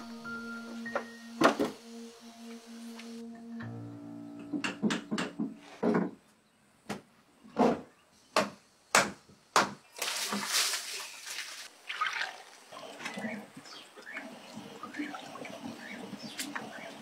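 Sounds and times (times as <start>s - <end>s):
wet splashy pour: 10.0s - 12.8s.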